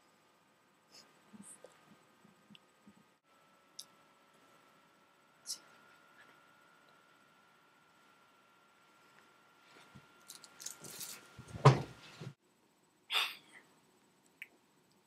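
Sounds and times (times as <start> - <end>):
rustling and knocking: 9.9 - 12.4
loud thump: 11.5 - 12.0.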